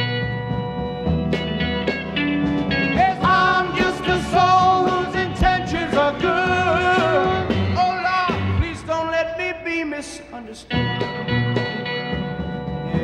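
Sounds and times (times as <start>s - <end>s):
electric organ: 0.0s - 9.7s, 10.3s - 13.0s
blues-rock band playing: 0.0s - 10.0s, 10.6s - 13.0s
drums: 0.0s - 13.0s
voices singing long notes: 2.9s - 9.7s.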